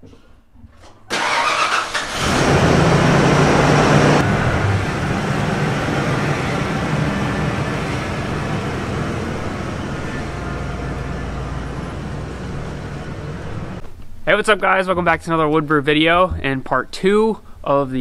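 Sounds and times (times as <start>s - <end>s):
engine starter cranking: 1.1s - 3.4s
truck engine idling: 1.2s - 13.8s.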